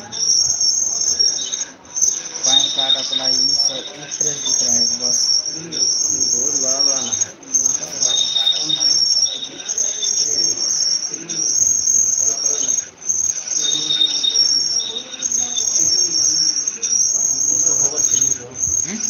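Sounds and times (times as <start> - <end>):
insects trilling: 0.0 - 19.0
lower insect tone: 0.0 - 19.0.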